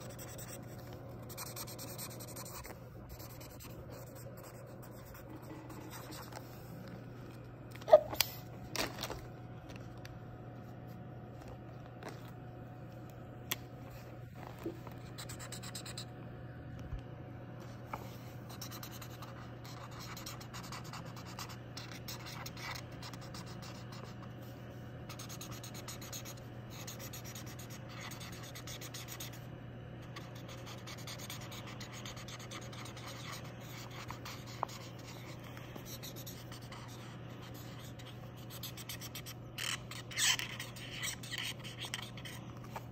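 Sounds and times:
marker scribbling on paper: 0.0 - 6.4, 18.5 - 24.3, 25.1 - 29.4, 30.2 - 42.4.

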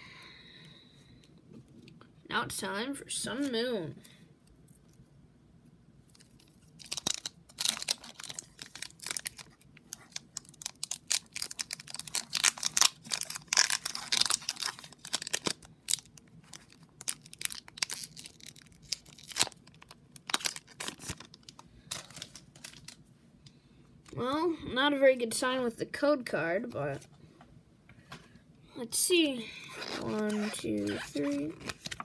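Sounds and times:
foil wrapper tearing and crinkling: 6.1 - 23.0.

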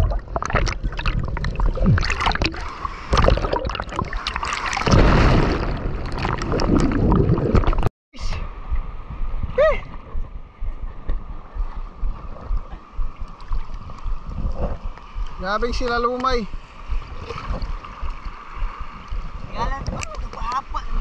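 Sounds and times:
shallow water washing: 0.0 - 7.9, 8.8 - 21.0
water splashing at camera: 0.0 - 7.9, 12.1 - 21.0.

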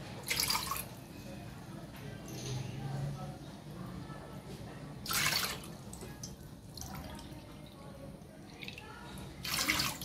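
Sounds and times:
water dripping and trickling: 0.2 - 1.0, 5.1 - 10.0
water pouring into a pot: 0.2 - 1.0, 5.0 - 7.7, 8.4 - 10.0.

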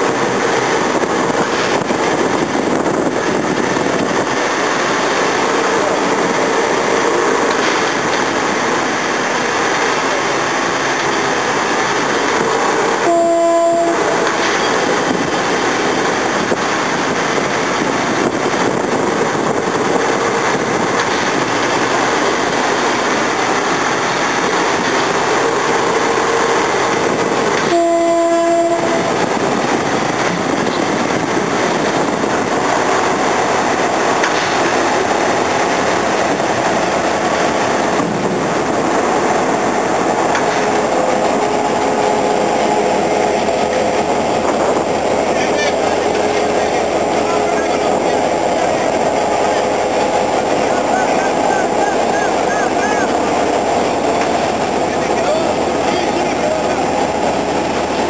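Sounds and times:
diesel locomotive passing: 0.0 - 58.0
train wheels on rails: 0.0 - 58.0
locomotive horn blast: 12.4 - 15.2, 25.5 - 29.6.

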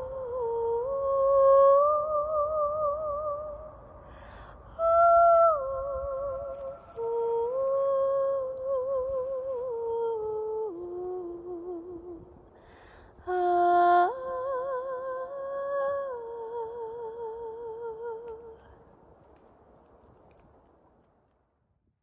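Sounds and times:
woman singing with vibrato: 0.0 - 3.8, 4.7 - 12.4, 13.2 - 18.6
singer breathing: 4.0 - 4.7, 12.6 - 13.2.

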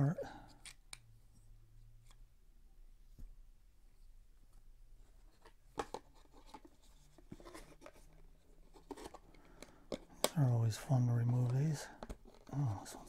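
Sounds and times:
hands handling plastic and cardboard: 3.1 - 10.6, 11.2 - 13.0
light plastic clicks and taps: 12.0 - 12.5.

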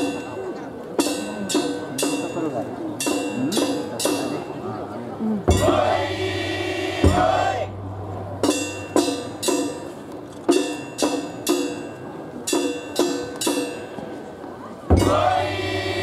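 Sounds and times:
ringing percussion strikes: 0.0 - 14.3, 14.9 - 16.0
voices chanting together: 5.5 - 7.8, 14.9 - 16.0.

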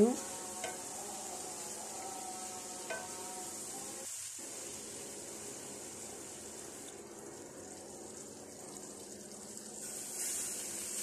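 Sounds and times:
vegetables sizzling in a pan: 0.0 - 11.0
spatula tapping pan: 0.6 - 1.0, 2.7 - 3.3.

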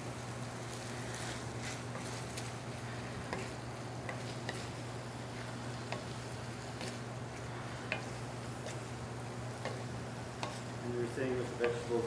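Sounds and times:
food sizzling in a pan: 0.0 - 12.0
steady low hum: 0.0 - 12.0
wooden spatula clicking on pan: 5.8 - 6.2, 7.9 - 8.9, 9.6 - 10.7.

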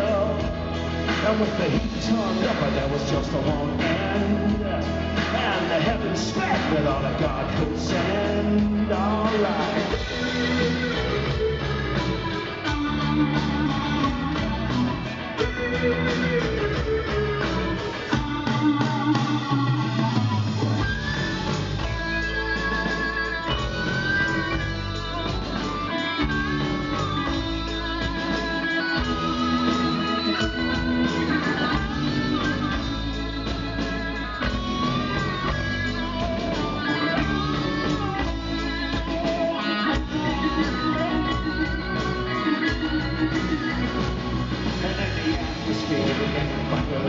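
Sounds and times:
live rock band playing: 0.0 - 47.0
wavering lead melody: 9.9 - 46.0.

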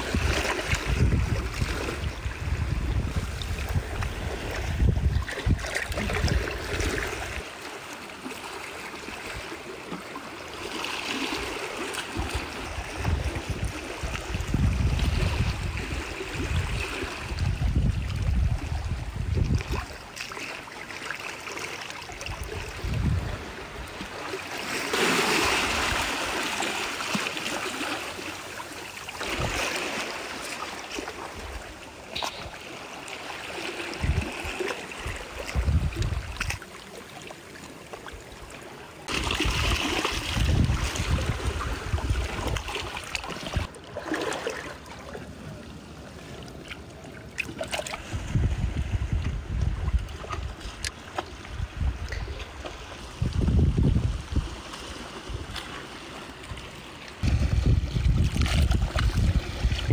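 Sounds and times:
wind buffeting microphone: 0.0 - 7.4, 12.2 - 20.0, 22.2 - 24.0, 33.9 - 36.6, 39.0 - 43.7, 48.0 - 55.6, 57.2 - 59.9
trickling shallow water: 0.0 - 59.9.

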